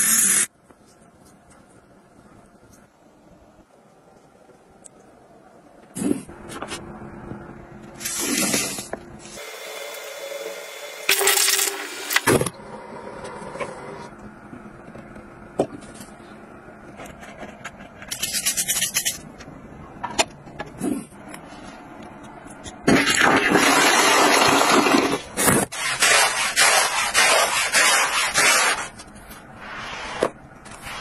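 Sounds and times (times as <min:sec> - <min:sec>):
loud scraping bursts: 0:23.2 - 0:29.0.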